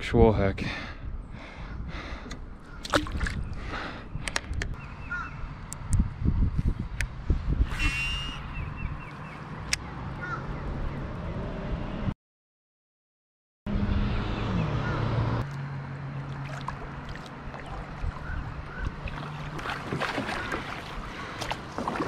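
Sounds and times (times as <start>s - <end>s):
kayak paddle splashing in water: 2.8s - 3.4s, 16.2s - 22.0s.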